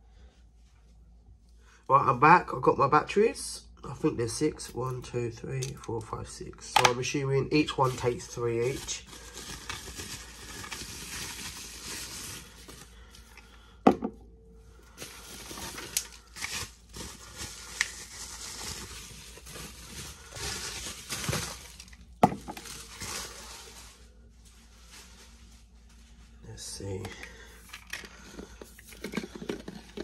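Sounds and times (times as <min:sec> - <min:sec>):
bubble wrap crinkling: 0:07.4 - 0:13.7, 0:14.8 - 0:26.3
grinder knocking on counter: 0:13.9 - 0:14.2.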